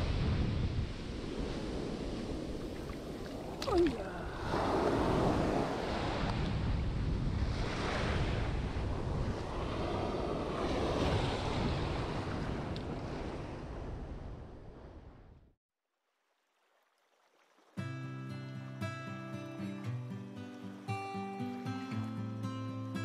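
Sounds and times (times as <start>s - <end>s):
ocean surf on sand: 0.0s - 15.2s
wind buffeting microphone: 0.0s - 15.4s.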